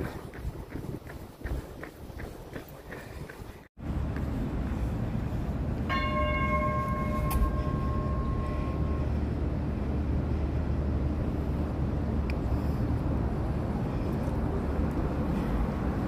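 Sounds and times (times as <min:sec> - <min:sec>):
tram rumbling on rails: 0:03.8 - 0:16.0
tram warning bell chime: 0:05.9 - 0:09.4.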